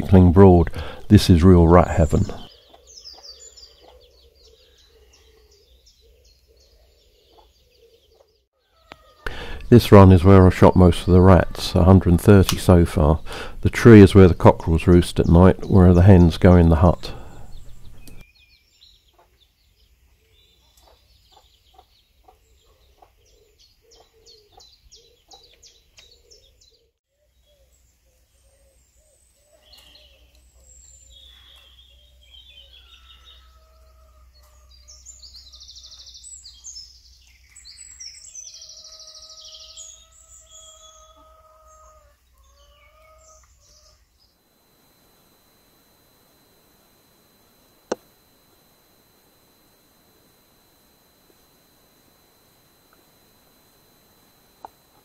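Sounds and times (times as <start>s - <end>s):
small birds chirping: 0.0s - 55.0s
cockerel crowing: 8.6s - 9.7s.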